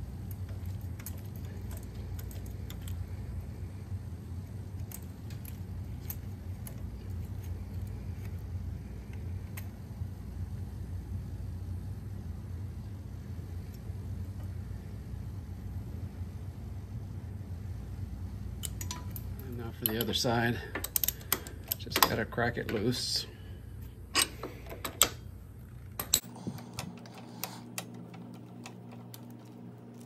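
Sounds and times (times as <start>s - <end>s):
steady low hum: 0.0s - 30.0s
small metal clicks and clinks: 18.6s - 22.2s.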